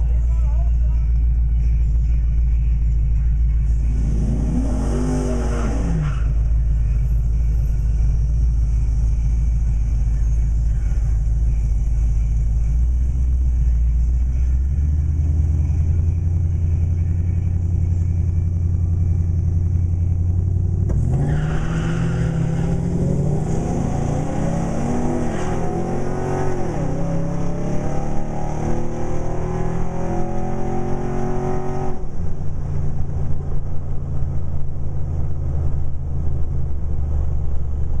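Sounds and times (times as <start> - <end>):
truck engines rumbling: 0.0 - 38.0
truck accelerating through gears: 3.7 - 7.7, 19.6 - 38.0.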